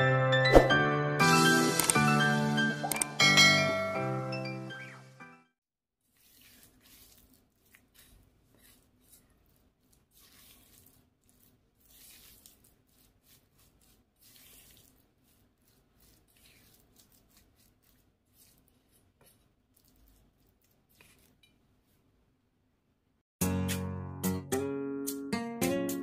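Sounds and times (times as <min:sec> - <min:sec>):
spatula scraping dough in bowl: 0:06.0 - 0:22.1.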